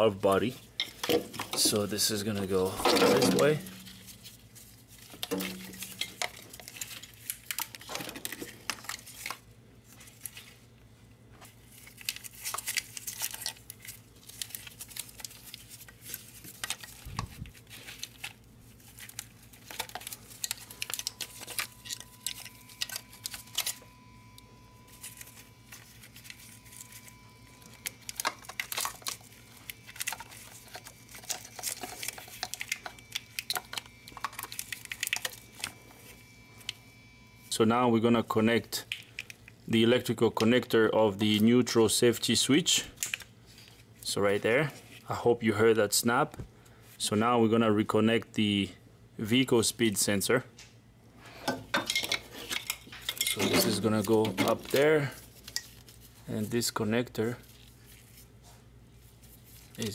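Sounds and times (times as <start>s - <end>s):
wiring harness rustling and scraping: 0.2s - 10.7s, 24.8s - 36.8s, 51.9s - 59.9s.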